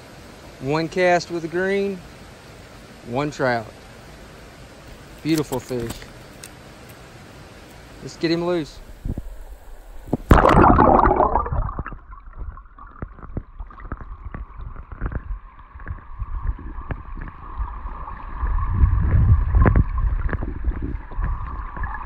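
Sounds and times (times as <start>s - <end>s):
low underwater rumble: 8.9s - 22.0s
muffled underwater gurgling: 10.1s - 22.0s
splash into water: 10.2s - 12.6s.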